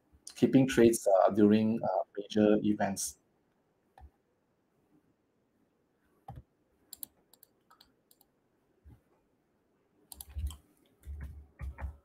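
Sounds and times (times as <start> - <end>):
computer mouse clicking: 6.3 - 8.3, 10.1 - 12.0.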